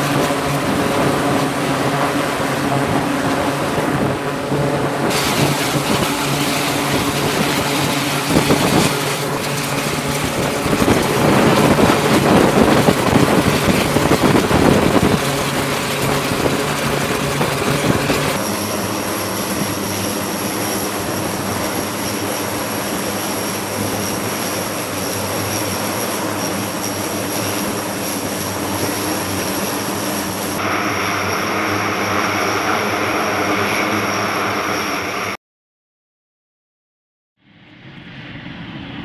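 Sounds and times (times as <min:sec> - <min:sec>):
high turbine whine: 0:00.0 - 0:35.4, 0:37.4 - 0:39.0
propeller drone: 0:00.0 - 0:35.4, 0:37.4 - 0:39.0.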